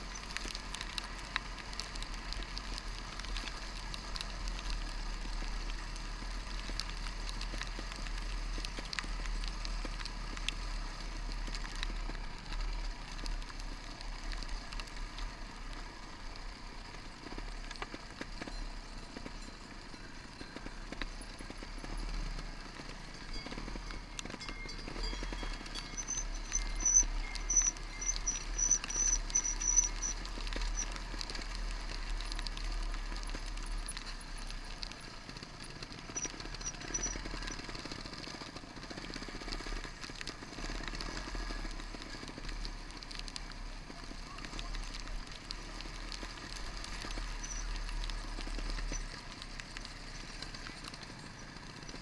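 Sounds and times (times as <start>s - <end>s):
bike knocking and rattling over rocks: 0.0s - 52.0s.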